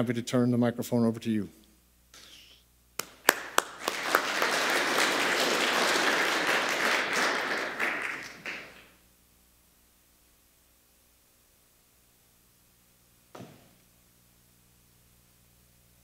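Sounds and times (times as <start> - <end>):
audience applauding: 3.0 - 8.9.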